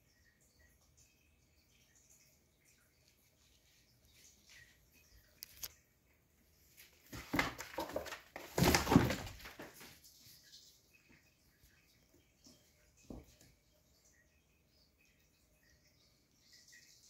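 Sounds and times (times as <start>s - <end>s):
cat scuffling on foam mats: 6.7s - 10.2s.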